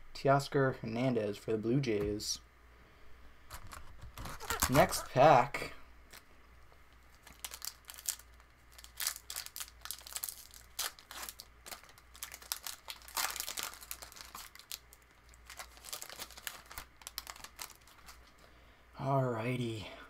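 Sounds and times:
wrapper tearing and crinkling: 3.5s - 5.1s, 7.1s - 18.3s.

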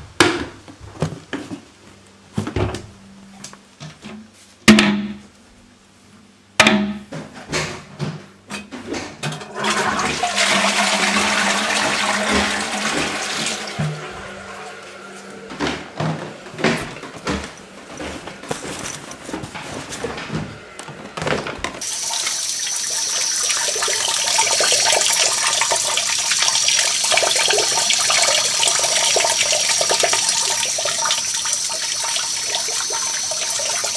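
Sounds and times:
toilet flushing: 9.4s - 18.1s, 20.1s - 33.9s
running water hissing: 21.8s - 33.9s.

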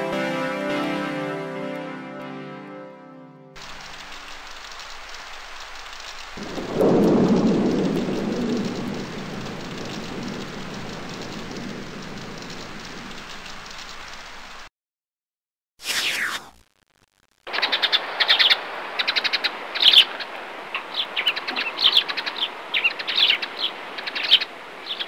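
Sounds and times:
steady rain: 3.6s - 14.7s, 17.0s - 25.0s
thunder rumbling: 5.2s - 13.8s.

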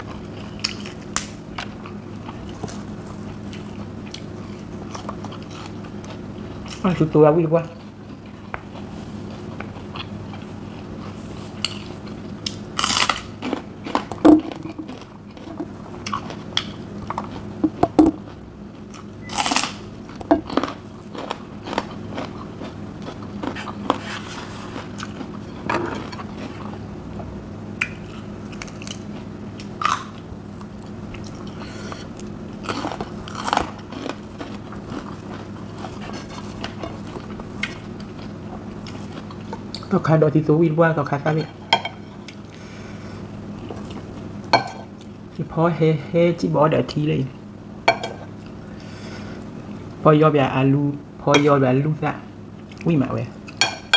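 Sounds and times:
crunchy chewing: 0.0s - 27.0s, 27.8s - 40.0s, 41.8s - 45.4s
steady low hum: 0.0s - 53.9s.

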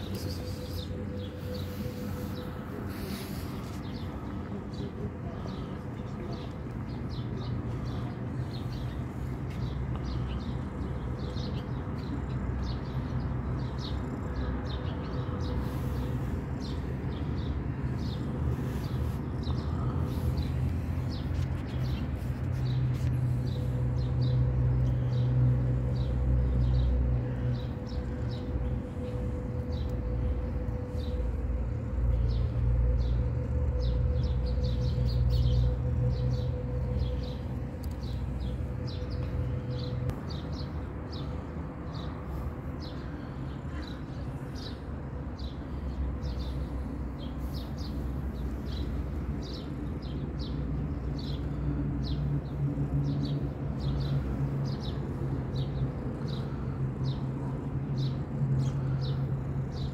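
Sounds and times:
small birds chirping: 0.0s - 59.9s
low rumble: 15.7s - 43.4s.

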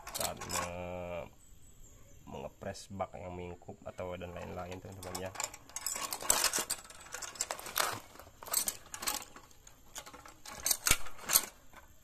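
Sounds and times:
ratchet winch metallic clicks and clanks: 0.0s - 0.8s, 4.4s - 11.8s.

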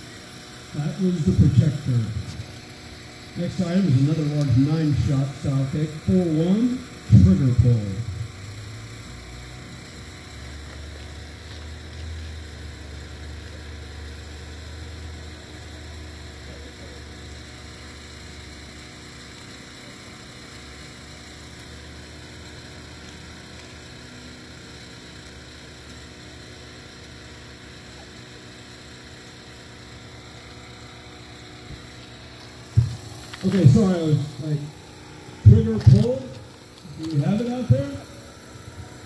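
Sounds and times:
low droning hum: 0.0s - 10.6s, 29.5s - 39.0s.

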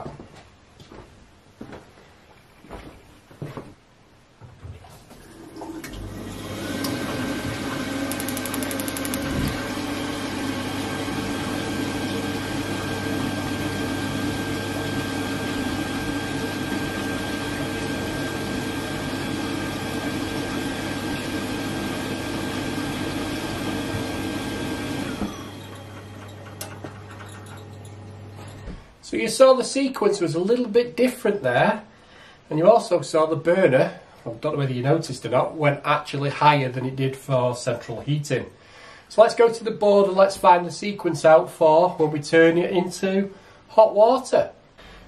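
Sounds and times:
boiler fan and pump hum: 4.5s - 31.8s
tap water rushing: 4.6s - 8.6s.

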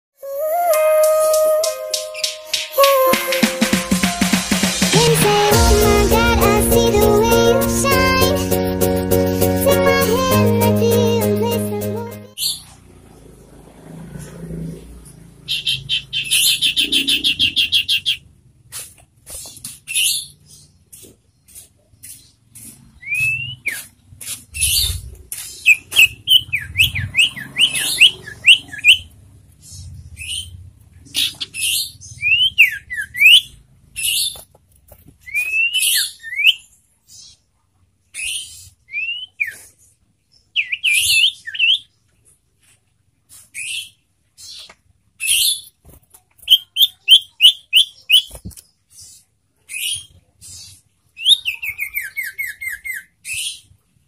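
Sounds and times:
bird whistled notes: 0.2s - 4.3s.

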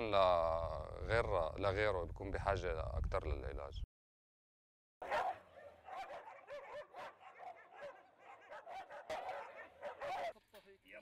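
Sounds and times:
dogs barking: 5.0s - 10.4s.

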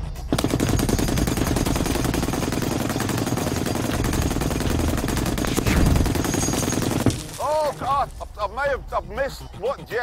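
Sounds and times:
heavy machine gun firing burst: 0.3s - 7.2s.

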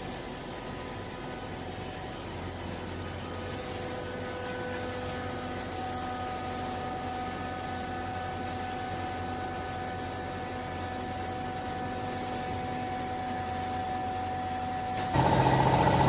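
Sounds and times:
high whine of steady tones: 0.0s - 16.0s
hydraulic baler motor humming: 15.0s - 16.0s.

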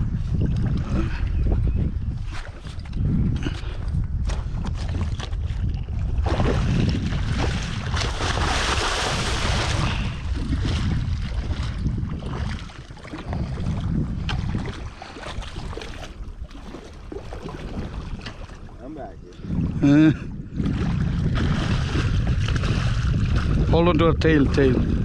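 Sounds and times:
wind on microphone: 0.0s - 25.0s
water splashing: 6.0s - 19.2s, 20.6s - 25.0s.

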